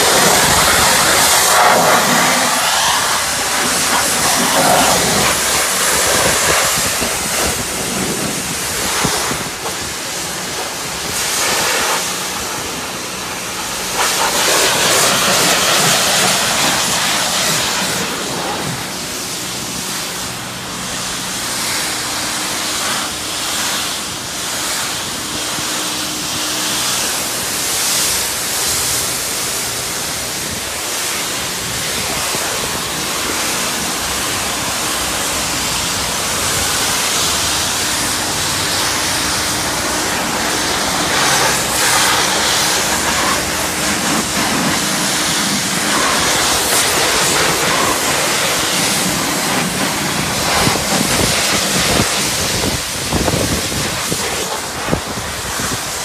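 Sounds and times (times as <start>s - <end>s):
pressure washer spraying: 0.0s - 56.0s.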